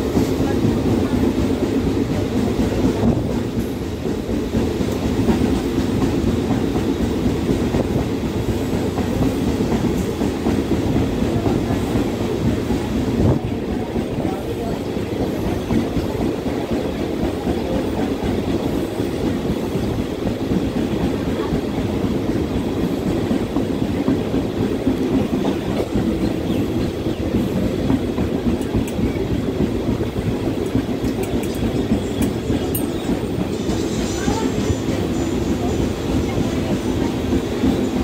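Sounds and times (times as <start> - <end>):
train wheels rumbling on rails: 0.0 - 38.0.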